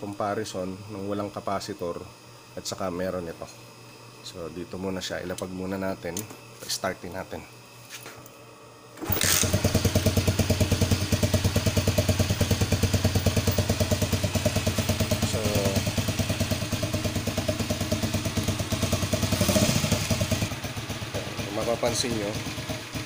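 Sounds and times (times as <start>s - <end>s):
motorcycle engine idling: 9.4s - 23.0s.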